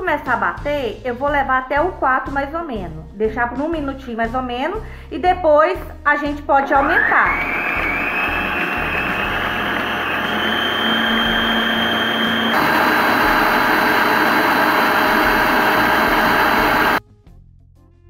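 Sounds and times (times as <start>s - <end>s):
stand mixer motor whining: 6.8s - 17.0s.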